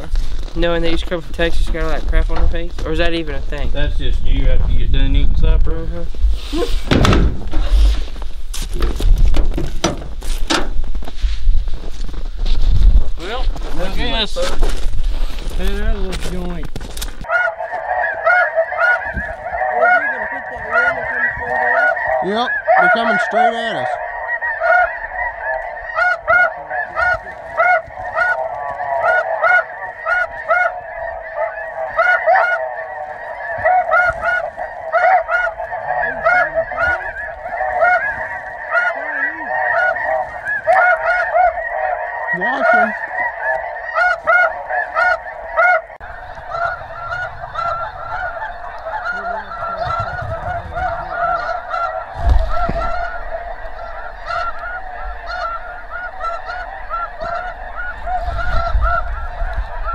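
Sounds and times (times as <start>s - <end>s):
dull low thump: 4.7s - 11.1s, 52.0s - 53.8s
geese honking: 12.9s - 59.9s.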